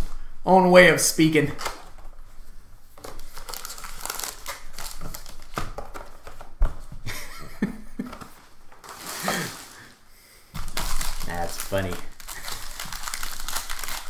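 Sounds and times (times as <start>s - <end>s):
plastic and cardboard crinkling: 1.5s - 7.1s, 8.0s - 10.0s, 10.6s - 14.0s.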